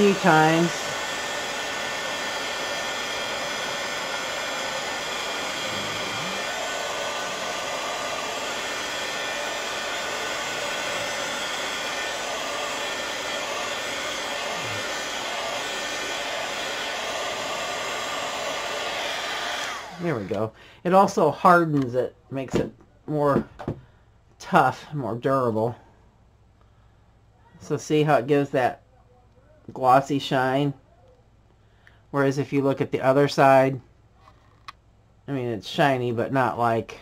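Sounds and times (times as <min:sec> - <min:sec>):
heat gun whirring: 0:00.0 - 0:20.6.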